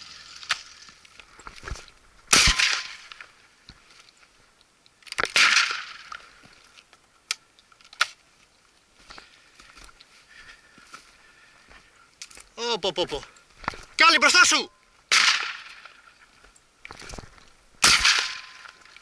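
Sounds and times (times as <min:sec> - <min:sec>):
shotgun shots with echo: 0:02.3 - 0:03.0, 0:05.3 - 0:06.0, 0:15.1 - 0:15.8, 0:17.8 - 0:18.7.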